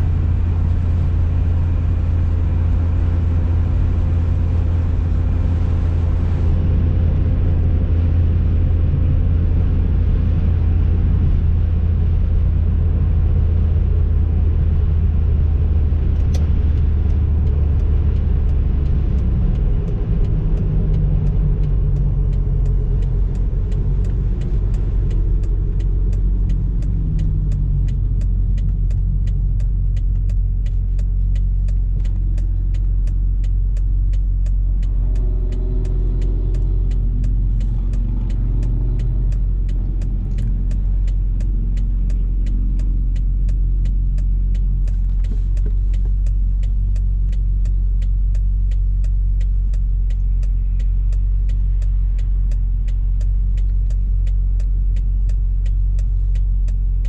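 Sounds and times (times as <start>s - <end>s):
car engine cruising: 0.0s - 57.0s
regular ticking: 16.2s - 57.0s.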